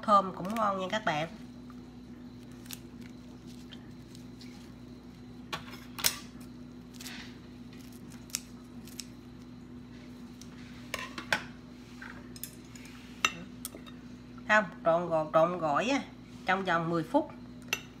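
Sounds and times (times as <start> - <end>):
steady low hum: 0.0 - 18.0
scissors snipping leaves: 7.8 - 9.2.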